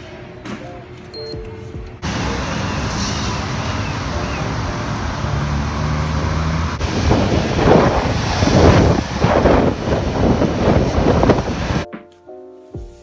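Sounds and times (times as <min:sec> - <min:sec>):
scooter engine hum: 0:01.8 - 0:08.1
passing road traffic: 0:02.0 - 0:11.9
wind noise on microphone: 0:06.8 - 0:11.9.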